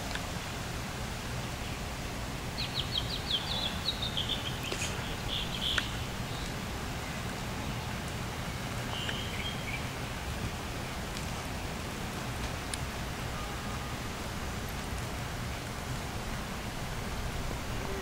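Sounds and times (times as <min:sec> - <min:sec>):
low background hiss: 0:00.0 - 0:18.0
bird chirping: 0:02.5 - 0:10.1.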